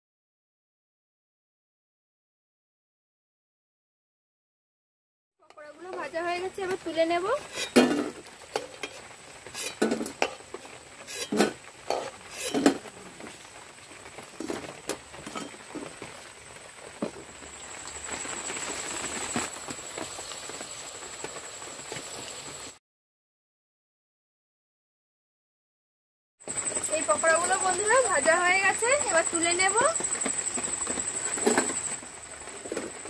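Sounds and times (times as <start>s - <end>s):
batter sizzling in hot oil: 5.5s - 22.8s, 26.4s - 33.0s
metal spatula scraping metal: 7.4s - 12.8s, 15.3s - 15.6s.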